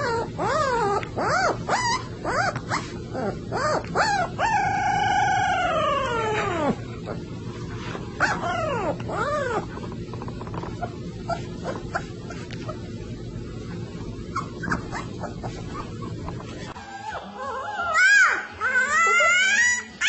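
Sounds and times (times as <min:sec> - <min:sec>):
puppy yipping and howling: 0:00.0 - 0:06.8, 0:08.2 - 0:09.7, 0:14.3 - 0:20.0.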